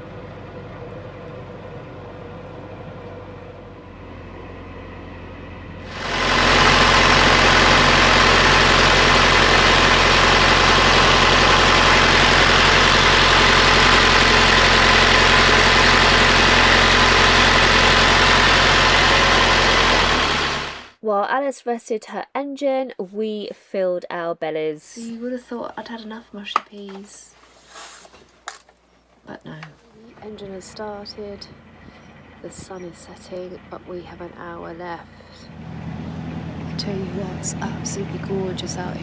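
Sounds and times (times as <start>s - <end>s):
diesel engine idling: 0.0s - 20.9s, 30.0s - 39.0s.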